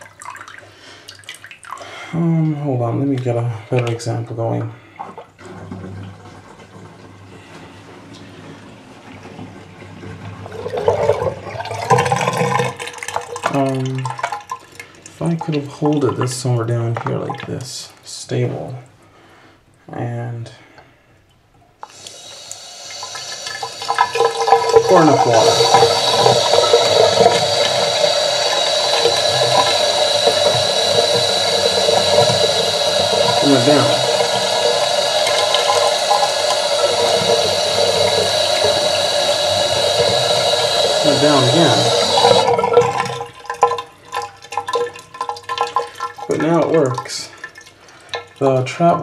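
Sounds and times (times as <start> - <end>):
water splashing and gurgling: 21.9 - 49.0.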